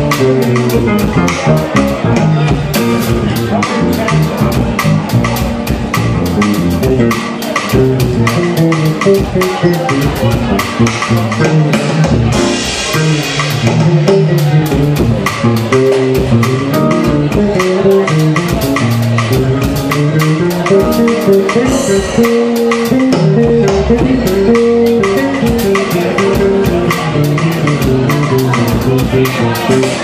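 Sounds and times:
drum kit steady beat: 0:00.0 - 0:30.0
electric bass line: 0:00.0 - 0:30.0
keyboard chords: 0:00.0 - 0:30.0.

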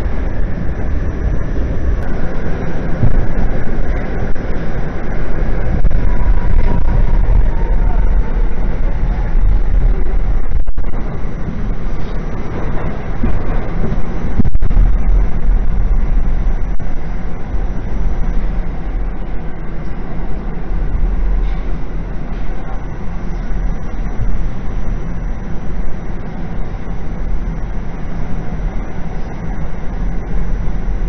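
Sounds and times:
subway wheels rumbling on rails: 0:00.0 - 0:31.0.

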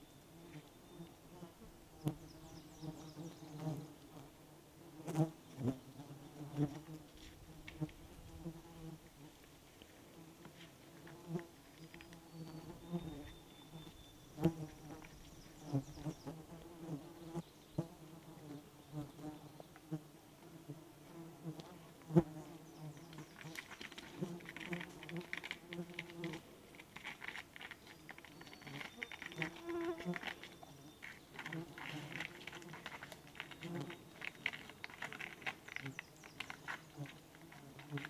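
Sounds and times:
flying insects buzzing: 0:10.2 - 0:38.0.

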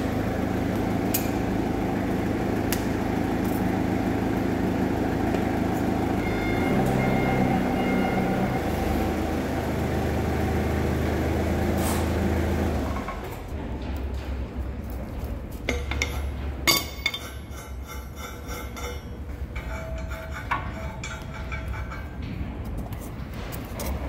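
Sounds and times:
large engine running: 0:00.0 - 0:17.8.

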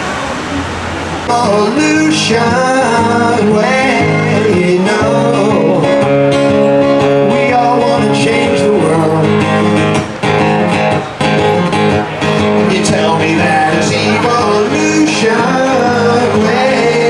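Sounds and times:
person singing: 0:01.3 - 0:06.2, 0:07.0 - 0:09.7, 0:12.6 - 0:17.0
guitar through a pa: 0:01.3 - 0:17.0.

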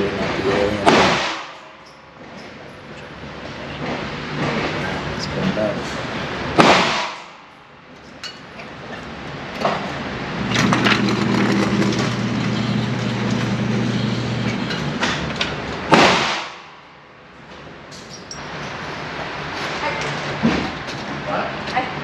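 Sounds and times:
gunshot echoing: 0:00.8 - 0:01.6, 0:06.6 - 0:07.4, 0:15.9 - 0:16.7
electric motor hum: 0:10.4 - 0:15.0.

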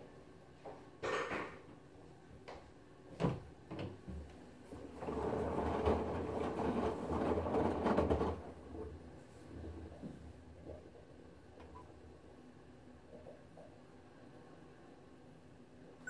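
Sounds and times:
washing machine drum motor humming: 0:03.7 - 0:10.0.

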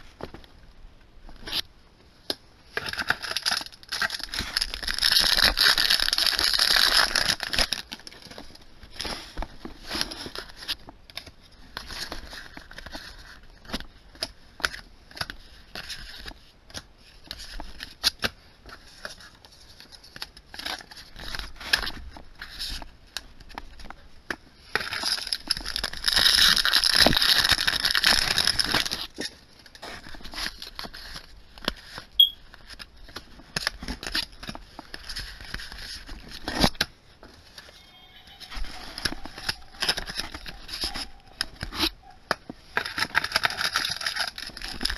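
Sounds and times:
foil wrapper crinkling: 0:02.8 - 0:13.8, 0:24.6 - 0:37.8, 0:38.4 - 0:44.9.

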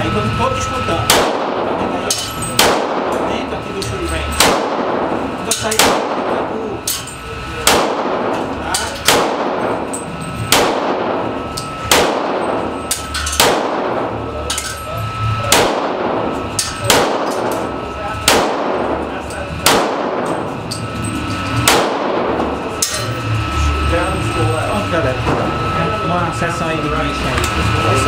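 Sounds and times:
pistol shots echoing: 0:01.1 - 0:01.9, 0:02.6 - 0:03.3, 0:04.3 - 0:06.5, 0:07.6 - 0:14.2, 0:15.5 - 0:20.5, 0:21.6 - 0:22.6.

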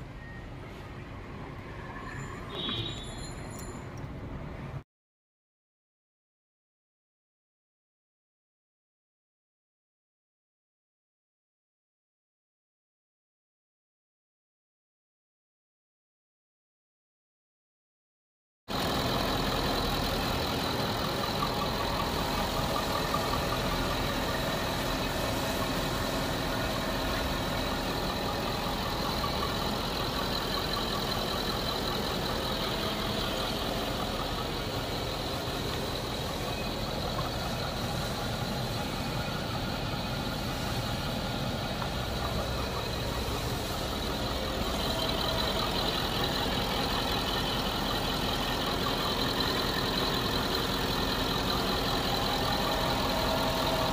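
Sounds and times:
diesel engine idling: 0:18.7 - 0:53.9.

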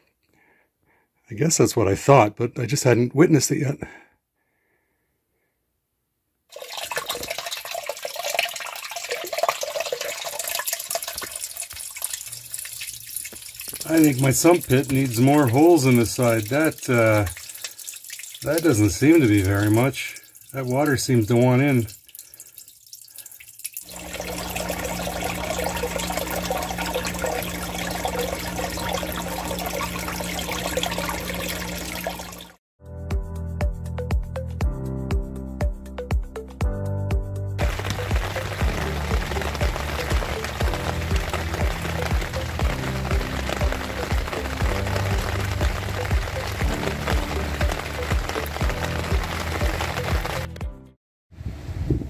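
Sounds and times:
water trickling and splashing: 0:06.5 - 0:32.6, 0:37.6 - 0:50.6.

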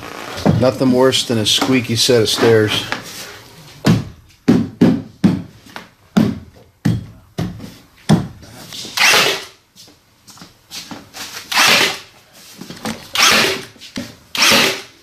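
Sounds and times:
nail gun shots with hiss: 0:11.5 - 0:12.0, 0:14.4 - 0:14.9.

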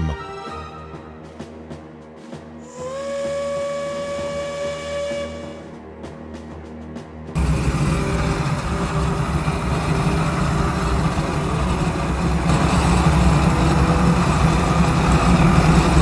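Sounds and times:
industrial machinery rumbling: 0:03.4 - 0:16.0.

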